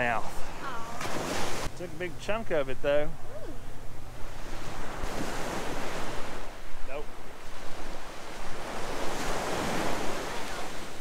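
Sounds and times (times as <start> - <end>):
surf washing up beach: 0.0 - 2.9, 4.1 - 11.0.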